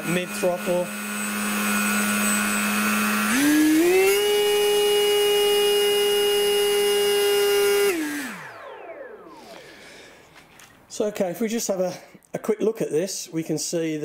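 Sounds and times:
electric motor and propeller whine: 0:00.0 - 0:09.9.

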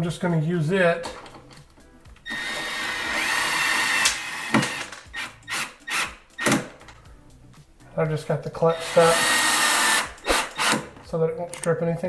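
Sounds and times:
screwdriver motor whine: 0:02.2 - 0:06.1, 0:08.8 - 0:10.9.

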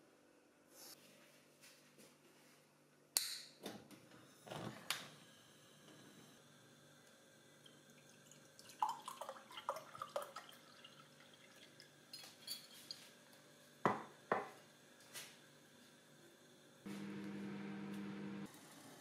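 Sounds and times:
liquid pouring into glass: 0:07.6 - 0:12.4.

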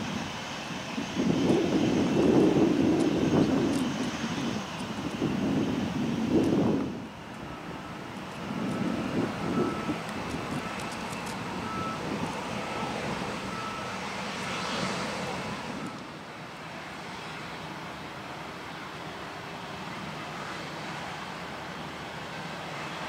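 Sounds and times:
jet engines roaring: 0:00.0 - 0:23.0.

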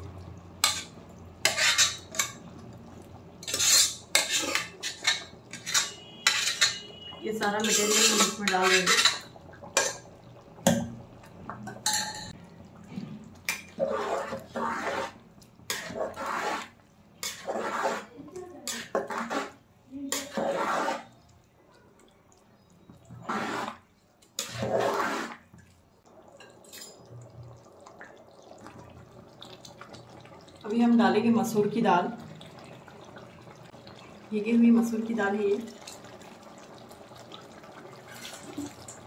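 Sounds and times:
spoon scraping a metal pan: 0:00.6 - 0:02.4, 0:03.4 - 0:10.0, 0:13.6 - 0:21.1, 0:24.4 - 0:25.4
stirring rice in water: 0:00.6 - 0:10.1, 0:13.0 - 0:21.4, 0:22.0 - 0:25.8, 0:38.0 - 0:39.0.

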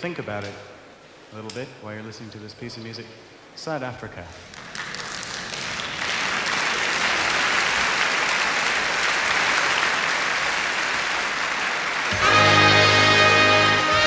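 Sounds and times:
audience applauding: 0:04.5 - 0:14.0
jazz big band brass chord: 0:12.1 - 0:14.0.

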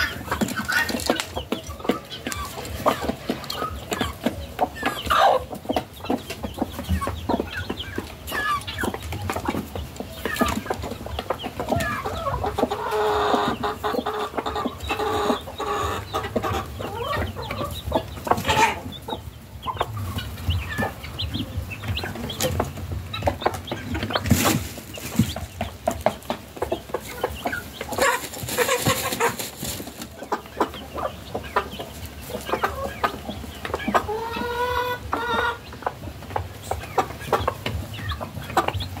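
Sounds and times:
hens clucking: 0:00.0 - 0:39.0
noisy rustle: 0:23.9 - 0:25.5.

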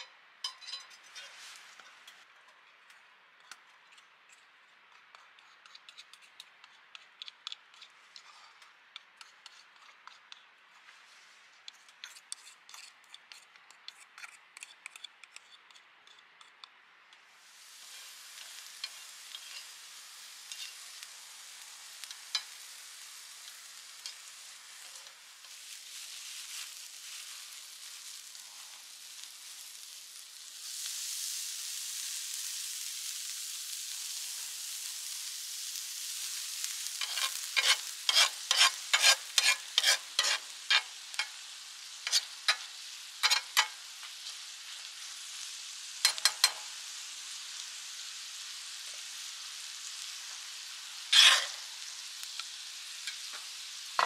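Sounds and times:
food sizzling on a griddle: 0:00.0 - 0:54.0
metal spatula scraping on iron: 0:00.4 - 0:02.6, 0:05.1 - 0:10.5, 0:11.7 - 0:16.5, 0:17.9 - 0:19.7, 0:20.5 - 0:20.9, 0:37.0 - 0:41.4, 0:42.0 - 0:44.4, 0:51.1 - 0:51.6.

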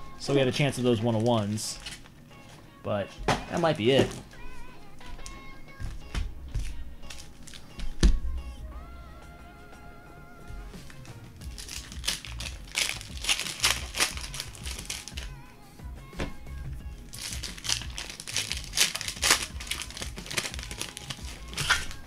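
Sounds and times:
plastic wrappers crinkling: 0:00.5 - 0:02.2, 0:07.0 - 0:07.7, 0:10.9 - 0:15.4, 0:17.1 - 0:22.0.

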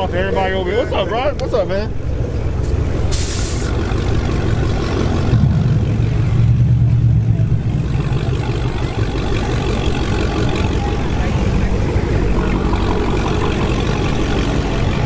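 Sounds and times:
vehicle engines rumbling: 0:00.0 - 0:15.0
short hiss: 0:03.1 - 0:03.7.

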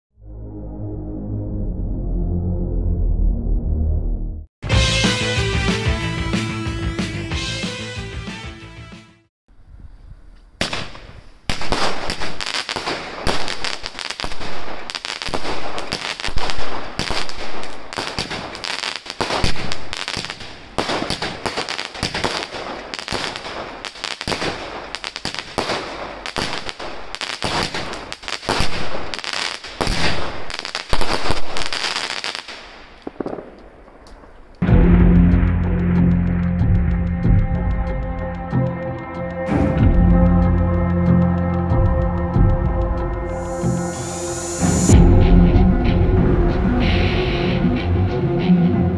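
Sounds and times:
roman candle fireworks shots: 0:10.6 - 0:34.7.

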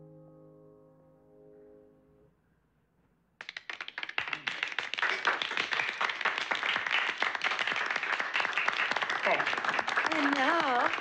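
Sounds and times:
people applauding: 0:03.4 - 0:11.0.

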